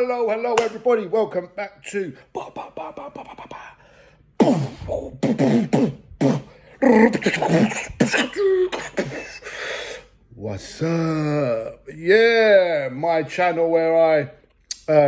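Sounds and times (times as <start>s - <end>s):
man beatboxing: 2.2s - 3.8s, 4.4s - 9.3s.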